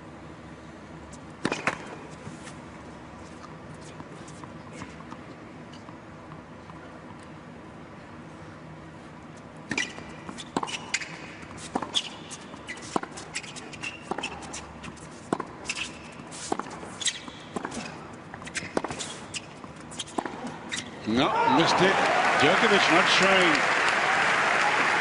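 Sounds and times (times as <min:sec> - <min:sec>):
tennis ball struck by rackets: 0:01.4 - 0:01.8
sneakers squeaking on court: 0:09.7 - 0:21.0.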